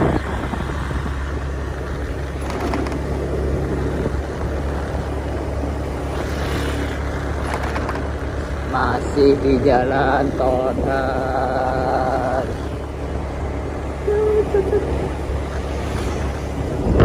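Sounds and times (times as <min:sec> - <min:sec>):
wind on microphone: 0:00.0 - 0:06.4, 0:14.1 - 0:17.0
motorcycle engine cruising: 0:00.0 - 0:17.0
road rumble: 0:00.0 - 0:17.0.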